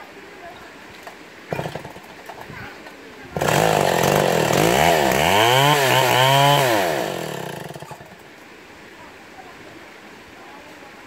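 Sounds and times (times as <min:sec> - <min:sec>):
chainsaw cutting log: 0:01.5 - 0:02.5, 0:03.4 - 0:08.2.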